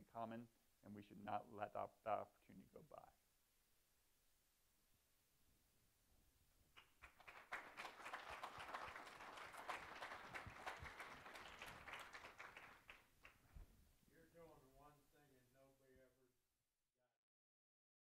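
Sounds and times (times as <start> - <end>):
audience applauding: 6.8 - 13.4.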